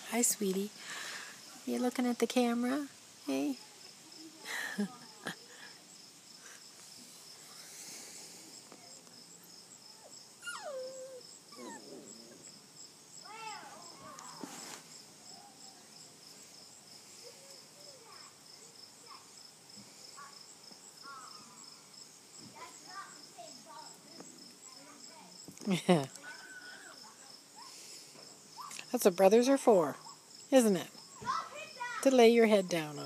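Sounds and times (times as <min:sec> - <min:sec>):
insect trill: 0:00.0 - 0:33.0
puppies whimpering and yelping: 0:10.4 - 0:12.4.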